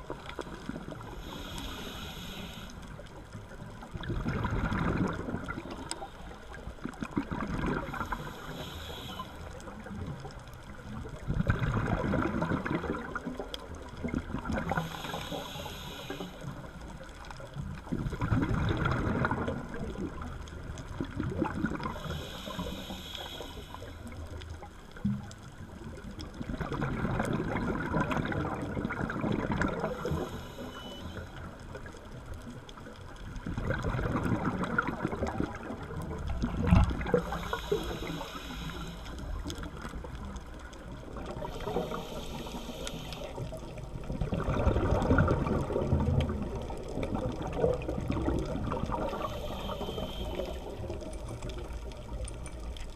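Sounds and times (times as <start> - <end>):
diver inhaling through regulator: 1.1 - 3.0, 7.9 - 9.6, 14.7 - 16.7, 21.8 - 24.2, 29.7 - 31.4, 37.0 - 39.4, 41.4 - 43.7, 48.9 - 51.0
exhaust bubbles underwater: 3.2 - 16.8, 17.5 - 24.4, 25.0 - 52.9.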